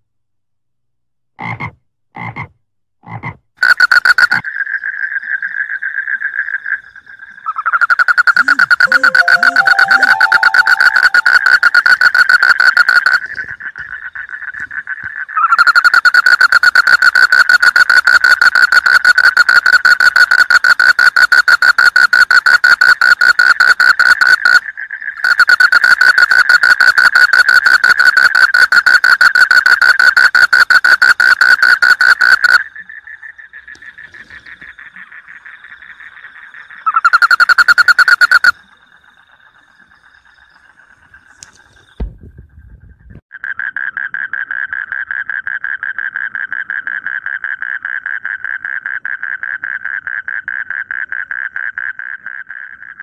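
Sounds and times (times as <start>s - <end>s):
faint frogs calling: 3.0s - 42.0s, 43.3s - 53.0s
frogs croaking: 3.0s - 42.0s, 43.3s - 53.0s.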